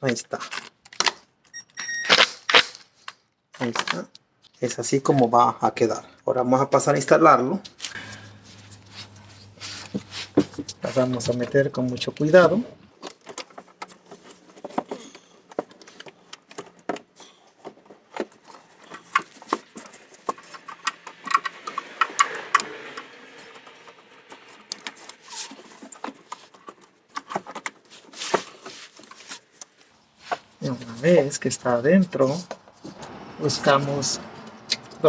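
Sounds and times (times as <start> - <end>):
plastic rubbing: 12.9 - 31.1.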